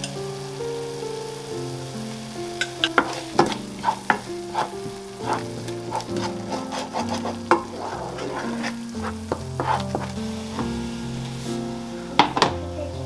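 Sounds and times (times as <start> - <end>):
paste sizzling in pan: 0.0 - 13.0
spatula scraping frying pan: 2.6 - 11.9.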